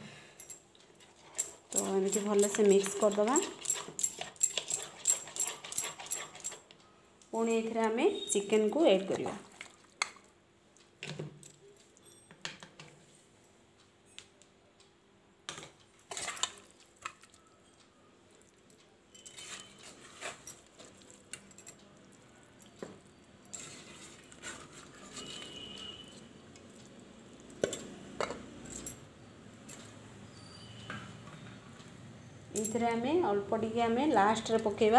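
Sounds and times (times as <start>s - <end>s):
steel container clinking against bowl: 1.4s - 6.6s.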